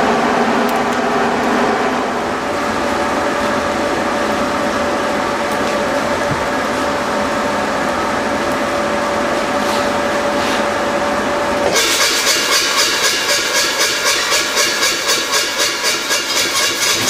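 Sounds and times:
power hammer striking metal: 11.7s - 17.0s.

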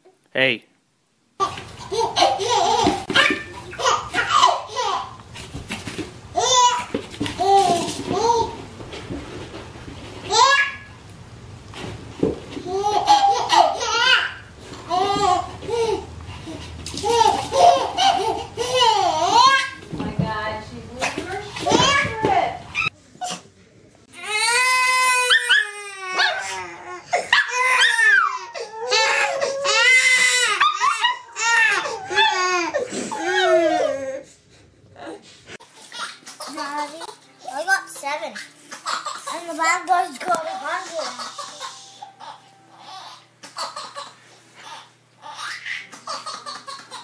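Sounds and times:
baby laughing: 1.4s - 5.2s, 12.6s - 19.8s, 38.3s - 39.6s, 40.5s - 47.0s.

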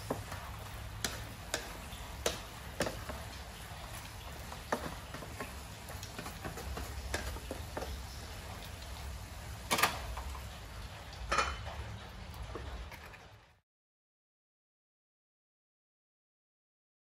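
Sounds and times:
chopsticks tapping and scraping wok: 0.0s - 8.6s.

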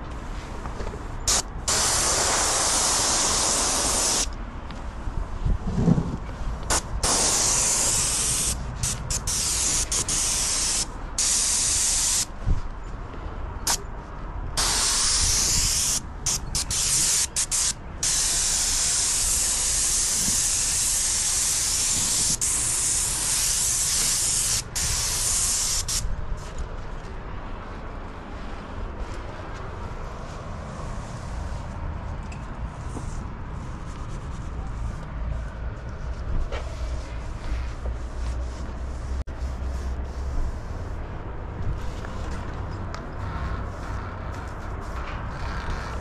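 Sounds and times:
paint sprayer hissing: 1.3s - 4.3s, 6.7s - 12.3s, 14.6s - 26.0s.

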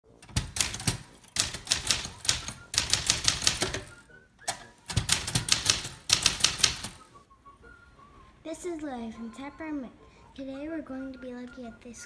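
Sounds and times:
manual typewriter typing: 0.2s - 7.0s.

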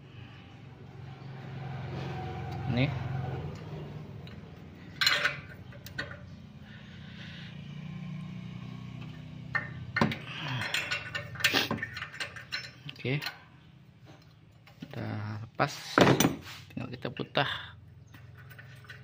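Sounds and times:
spanner clinking on metal: 3.4s - 6.6s, 8.9s - 14.9s, 18.0s - 19.0s.

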